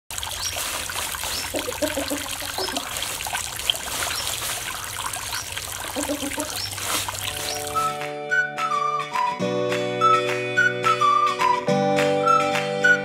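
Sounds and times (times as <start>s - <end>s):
water trickling and splattering: 0.1s - 8.1s.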